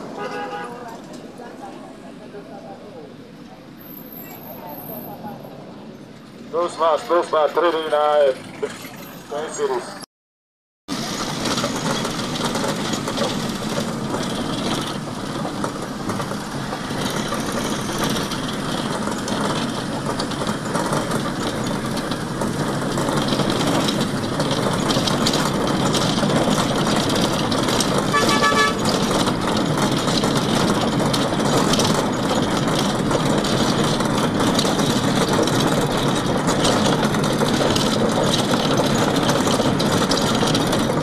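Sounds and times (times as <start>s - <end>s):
engines and tyres running: 0.0s - 10.0s, 10.9s - 41.0s
vehicle horn: 0.1s - 0.9s, 28.1s - 29.0s.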